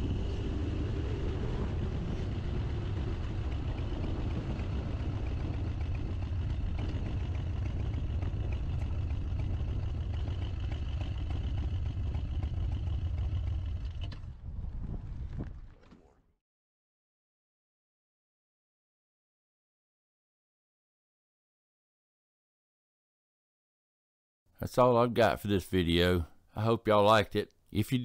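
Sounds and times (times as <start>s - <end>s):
motorcycle engine rumble: 0.0s - 16.1s
wind and road noise: 0.0s - 16.2s.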